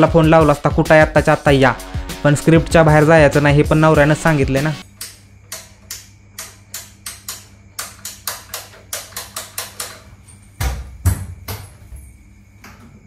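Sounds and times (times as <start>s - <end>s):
low mains hum: 4.3s - 13.0s.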